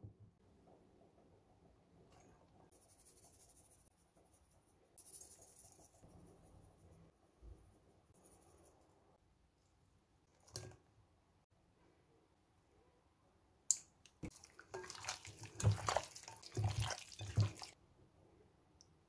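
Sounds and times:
wet squelching of meat: 14.2s - 17.8s.

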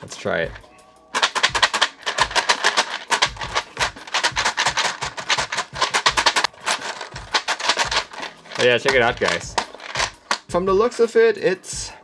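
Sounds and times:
keycaps rattling in plastic tray: 1.2s - 10.4s.

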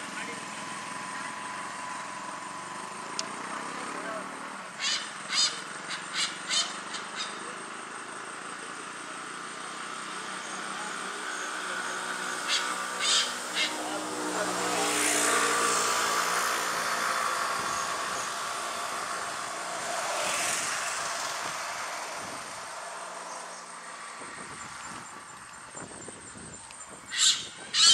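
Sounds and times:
hornbill calling: 4.6s - 8.1s, 9.9s - 19.1s, 26.8s - 27.9s.

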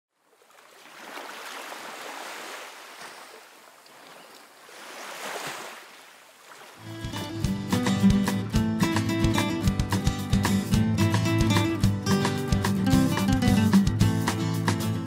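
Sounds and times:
ocean waves washing: 0.4s - 7.4s.

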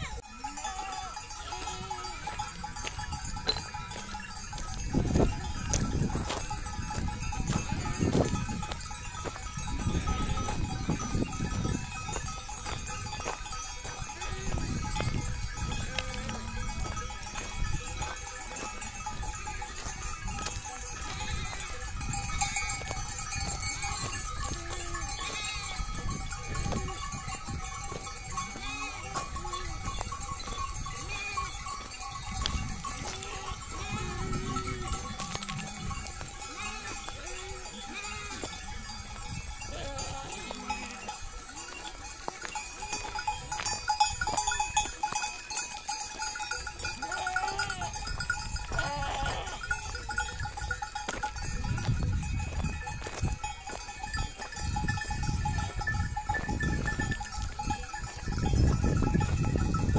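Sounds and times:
neck bells ringing: 0.0s - 59.9s
sheep bleating: 0.6s - 2.5s, 20.9s - 21.7s, 24.4s - 26.0s, 28.5s - 29.8s, 31.0s - 31.7s, 33.0s - 38.7s, 39.6s - 41.2s, 47.0s - 48.1s, 48.7s - 49.8s.

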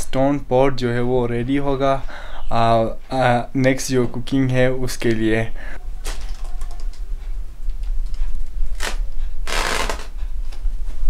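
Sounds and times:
steady low rumble: 6.8s - 11.0s.

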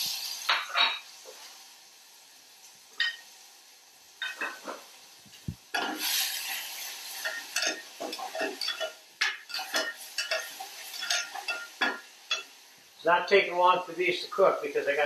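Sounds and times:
mushrooms sizzling in a pan: 0.0s - 15.0s
utensil clinking and scraping pan: 7.2s - 12.5s.

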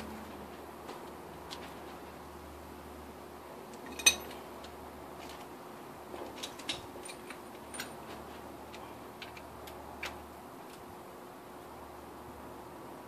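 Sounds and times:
metal hand tools clinking: 3.8s - 4.4s.

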